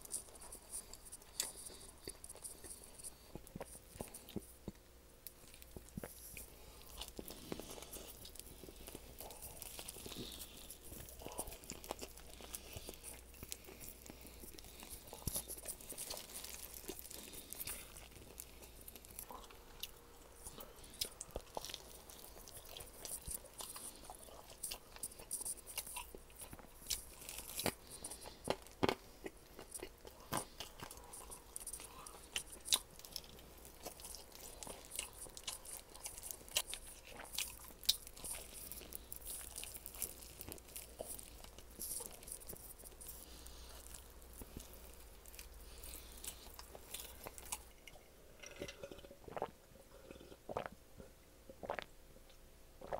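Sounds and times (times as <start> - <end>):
crunching of crispy chicken: 0.0 - 47.8
quiet chewing: 0.0 - 52.9.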